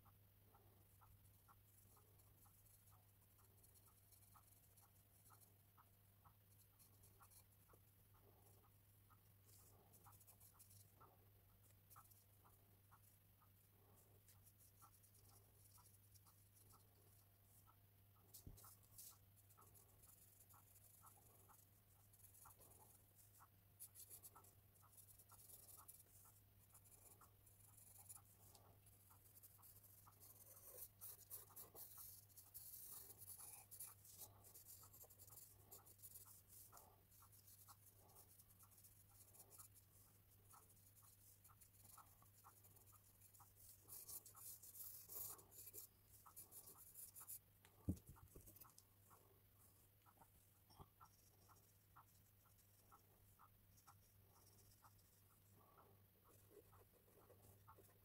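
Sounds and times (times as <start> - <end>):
pencil scratching on paper: 0.0 - 58.0.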